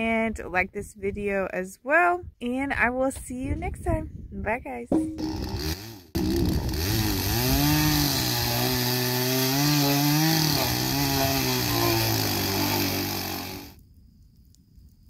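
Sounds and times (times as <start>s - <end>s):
chainsaw cutting log: 5.1s - 13.8s.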